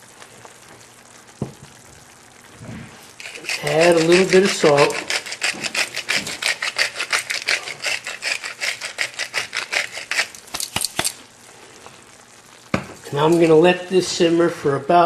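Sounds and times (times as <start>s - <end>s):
salt ticking into pot: 3.2s - 11.3s.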